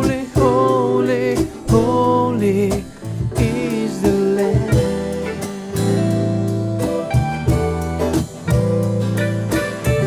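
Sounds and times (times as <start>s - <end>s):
person singing: 0.0s - 6.4s
acoustic guitar: 0.0s - 10.0s
bass guitar: 0.0s - 10.0s
digital piano: 0.0s - 10.0s.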